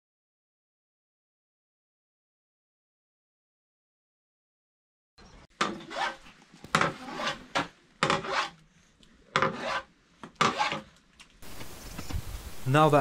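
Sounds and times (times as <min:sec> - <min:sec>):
hand saw cutting wood: 0:05.6 - 0:08.6, 0:09.3 - 0:10.9.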